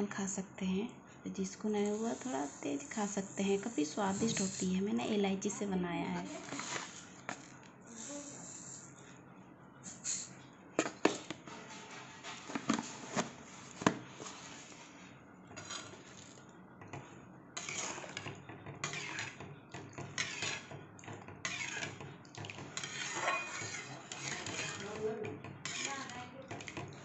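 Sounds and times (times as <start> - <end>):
spatula scraping metal pan: 6.2 - 7.0, 15.6 - 16.4, 17.6 - 20.8, 21.4 - 22.0, 22.6 - 26.8.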